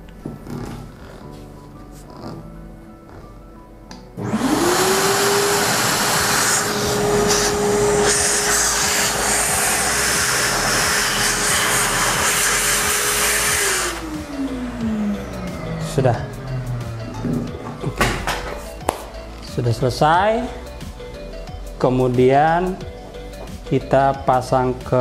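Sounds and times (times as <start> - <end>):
vacuum cleaner motor whine: 4.2 - 18.9.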